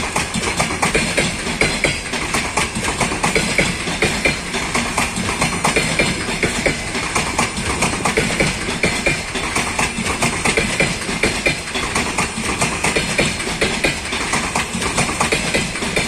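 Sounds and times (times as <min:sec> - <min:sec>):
train wheels clattering over joints: 0:00.0 - 0:16.0.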